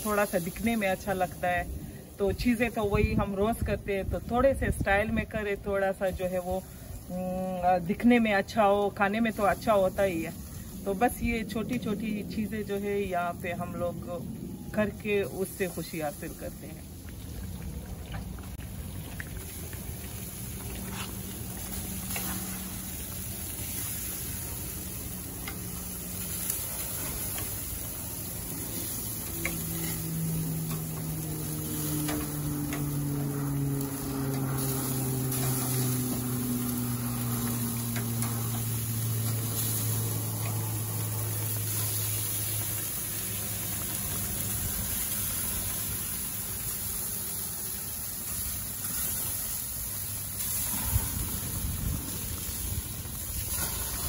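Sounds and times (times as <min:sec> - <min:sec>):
kebabs sizzling: 0:00.0 - 0:54.0
low hum sliding down in pitch: 0:17.0 - 0:45.8.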